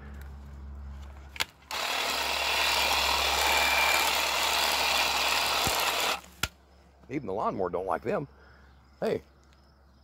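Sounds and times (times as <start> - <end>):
hedge trimmer running: 1.7 - 6.3.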